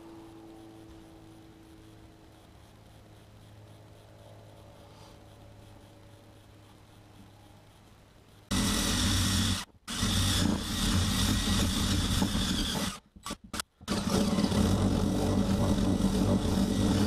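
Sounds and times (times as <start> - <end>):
cordless drill scrubbing rust off metal: 8.5 - 17.0.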